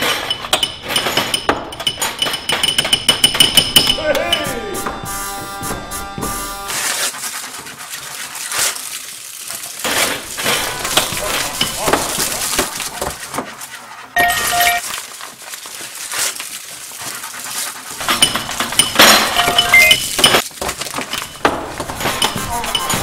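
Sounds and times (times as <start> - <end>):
small hard objects clinking: 0.0 - 5.0, 7.9 - 23.0
background voices: 10.2 - 13.2.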